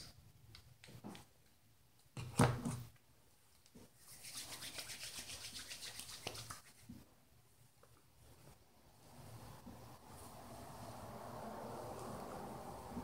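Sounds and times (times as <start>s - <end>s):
hands rubbing cream wetly: 3.9s - 7.1s.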